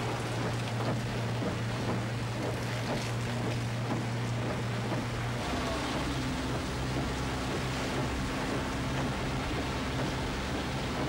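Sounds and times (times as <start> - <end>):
wind: 0.0 - 11.0
heavy rain: 5.4 - 10.3.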